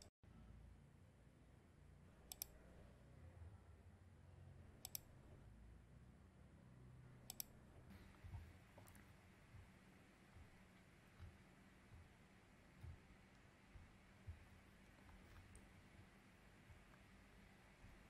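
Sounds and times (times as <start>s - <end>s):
low room rumble: 0.3s - 18.0s
computer mouse clicks: 2.3s - 2.6s, 4.8s - 5.1s, 7.3s - 7.6s.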